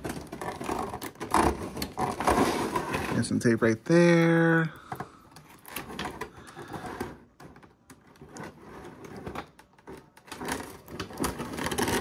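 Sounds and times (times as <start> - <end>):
packaging crinkling: 9.4 - 12.0.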